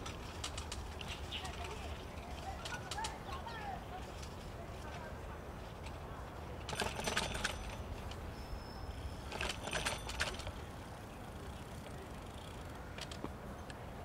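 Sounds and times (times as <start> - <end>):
low rumble of wind and riding: 0.0 - 14.0
bicycle metallic jangling: 6.6 - 13.2.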